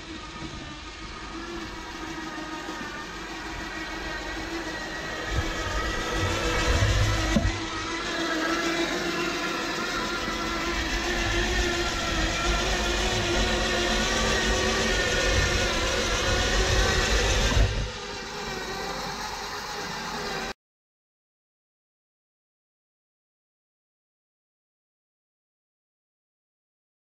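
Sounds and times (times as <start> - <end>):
electric motor whine: 0.0 - 20.6.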